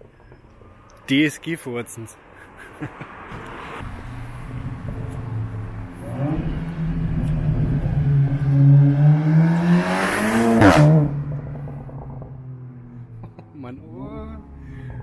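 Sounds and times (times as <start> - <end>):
car accelerating past: 3.4 - 13.4.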